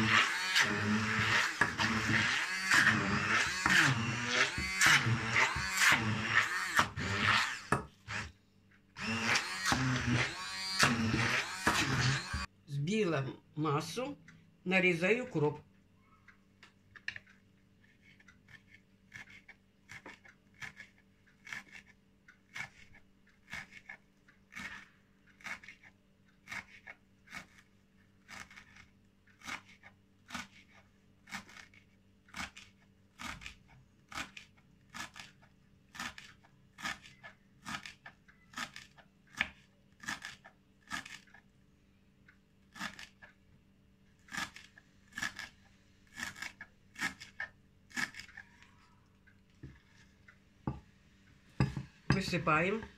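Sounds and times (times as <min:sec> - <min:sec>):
knife chopping on wooden board: 0:09.0 - 0:12.5, 0:51.6 - 0:52.9.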